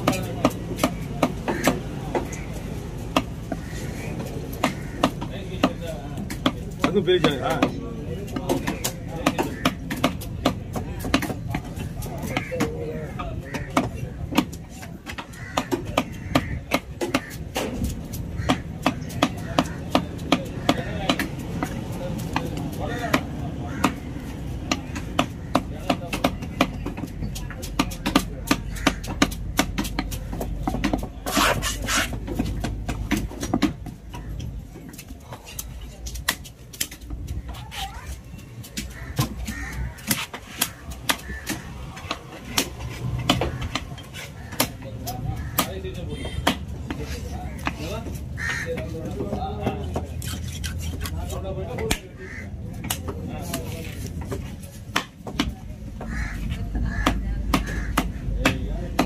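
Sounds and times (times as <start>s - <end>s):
knife chopping on wooden block: 3.1s - 7.7s, 13.5s - 34.2s, 38.7s - 47.0s, 56.7s - 59.0s.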